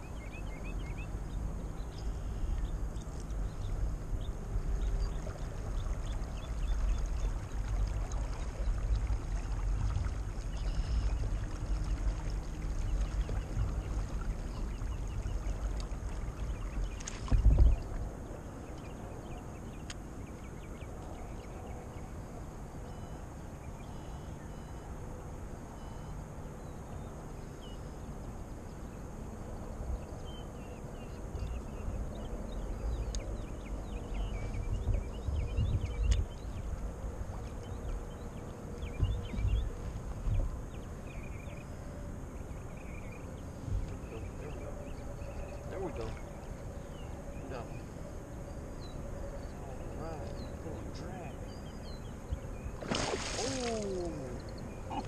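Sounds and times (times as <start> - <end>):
paddle swishing and dripping water: 4.8 - 18.4, 52.8 - 55.0.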